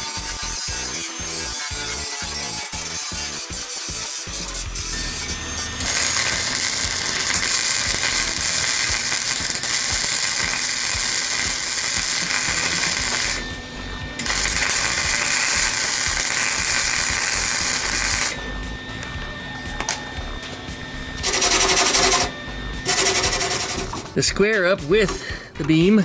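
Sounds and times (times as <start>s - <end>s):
welder crackling: 0.0s - 25.9s.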